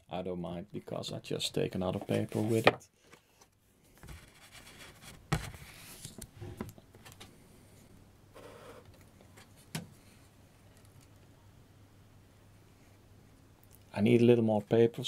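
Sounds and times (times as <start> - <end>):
paper rustling and sliding: 2.0 - 2.7, 4.0 - 7.2.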